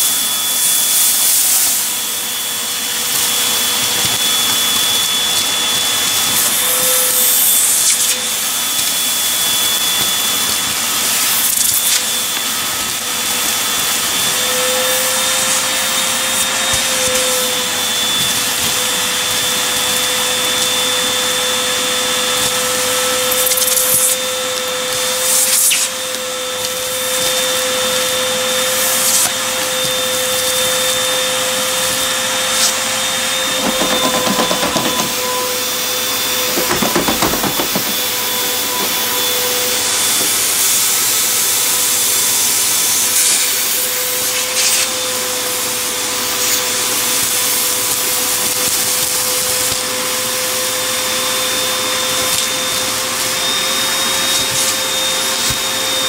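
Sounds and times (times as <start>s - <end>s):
vacuum cleaner whining: 0.0s - 56.0s
debris rattling up nozzle: 33.2s - 40.0s.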